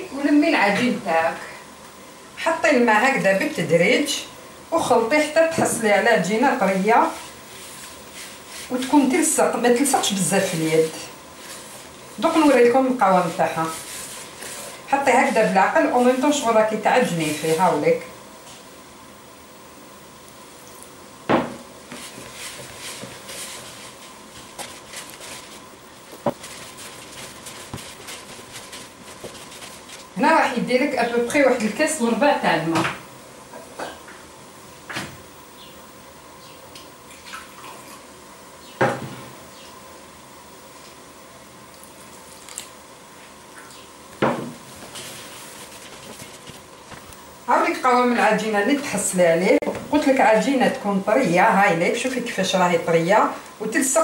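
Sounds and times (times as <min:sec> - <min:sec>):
hand mixing dough in plastic tub: 0:04.8 - 0:18.1, 0:21.8 - 0:32.3, 0:44.5 - 0:54.0
knock on plastic tub: 0:21.3 - 0:21.6.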